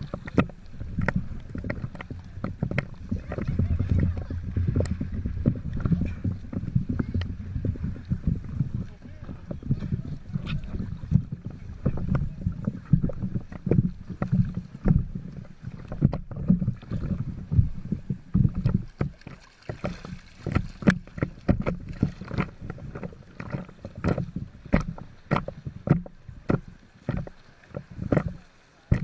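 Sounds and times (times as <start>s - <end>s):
swimmers splashing: 0.0s - 15.9s
water sloshing and lapping: 0.0s - 29.0s.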